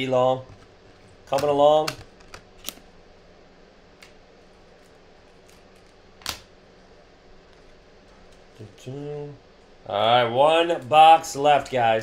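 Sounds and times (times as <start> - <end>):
low room noise: 0.0 - 12.0
trading cards clicking and tapping: 1.3 - 2.8.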